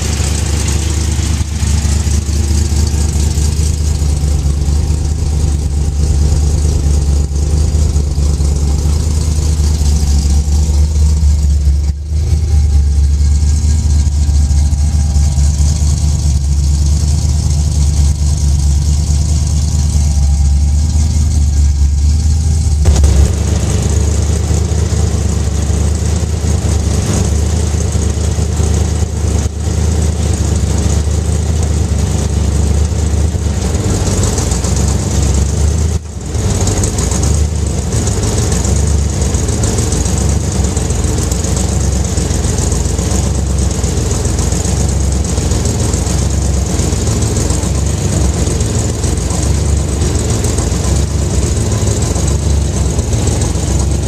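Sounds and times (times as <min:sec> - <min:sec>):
supercharged engine idling: 0:00.0 - 0:54.0.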